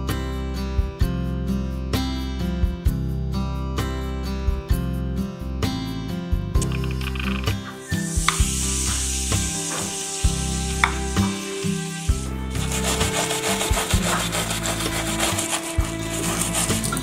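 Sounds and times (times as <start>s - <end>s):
wire brush scrubbing mesh filter: 7.6s - 17.0s.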